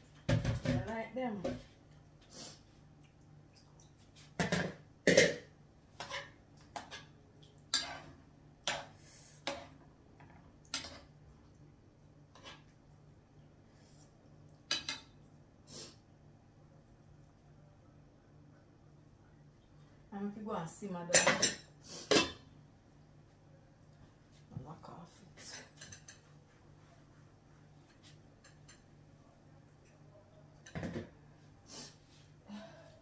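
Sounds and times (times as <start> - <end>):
dishes and utensils clinking: 21.1 - 22.5, 25.4 - 26.3, 27.9 - 28.9.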